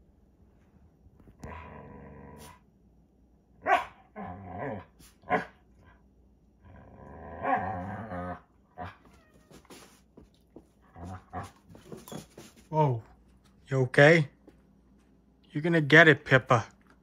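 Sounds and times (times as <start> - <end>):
dog growling: 1.4 - 2.6, 4.1 - 5.5, 6.6 - 9.0, 10.8 - 11.7
dog barking: 3.6 - 4.1, 5.3 - 5.6.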